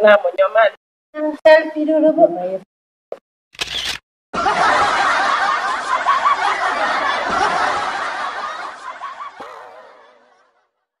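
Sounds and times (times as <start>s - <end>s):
women laughing: 4.4s - 10.7s.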